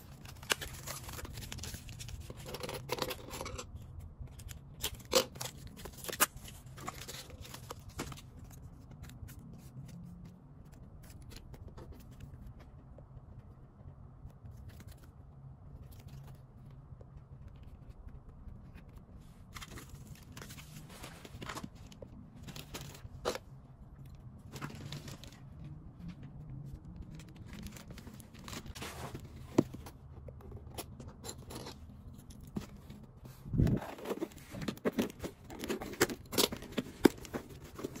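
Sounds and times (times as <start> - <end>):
steady low hum: 0.0 - 38.0
cardboard rustling and scraping: 17.5 - 23.5, 27.0 - 38.0.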